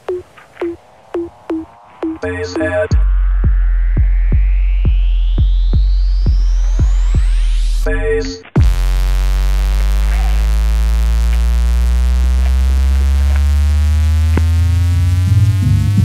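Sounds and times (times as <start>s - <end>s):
electronic music: 0.0s - 16.0s
held synthesizer note rising: 2.9s - 8.0s.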